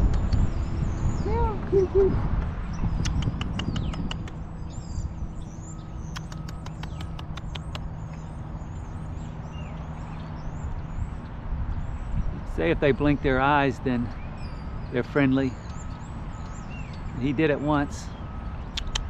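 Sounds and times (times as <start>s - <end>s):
low hum and outdoor rumble: 0.0s - 19.0s
small birds chirping: 0.0s - 19.0s
sharp ticks: 3.0s - 4.5s, 6.0s - 8.2s, 18.7s - 19.0s.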